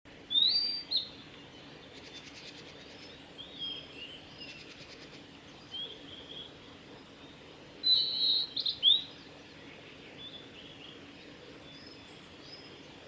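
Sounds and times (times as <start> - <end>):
bird whistled song: 0.3 - 1.2, 7.8 - 9.1.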